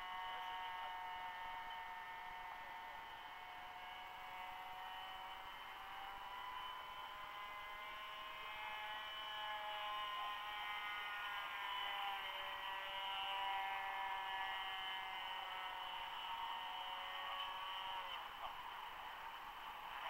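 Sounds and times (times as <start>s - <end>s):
model airplane motor whining: 0.0s - 20.0s.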